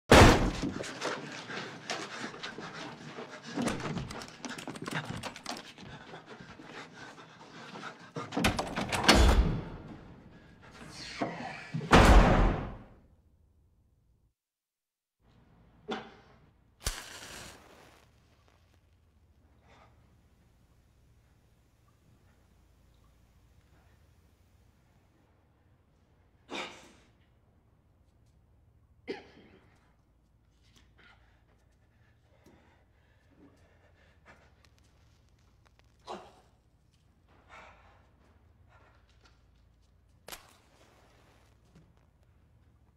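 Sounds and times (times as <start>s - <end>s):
man panting: 5.4s - 8.4s
faint low hum: 18.3s - 26.5s.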